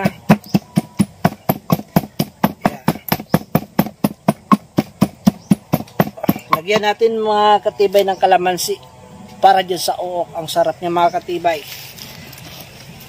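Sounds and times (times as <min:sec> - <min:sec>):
pestle pounding in wooden mortar: 0:00.0 - 0:07.0.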